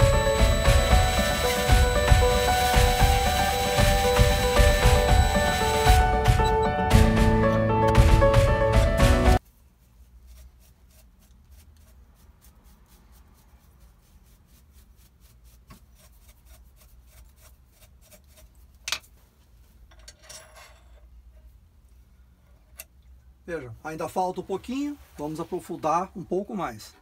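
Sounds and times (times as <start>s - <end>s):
music: 0.0s - 9.4s.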